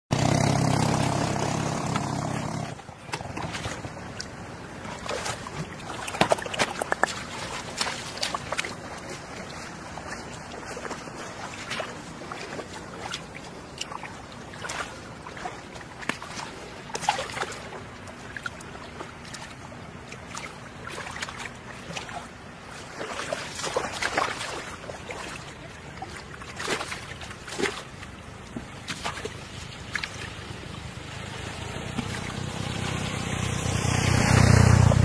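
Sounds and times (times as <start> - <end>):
steady water rush: 0.1 - 35.0
hands splashing in water: 3.1 - 30.5.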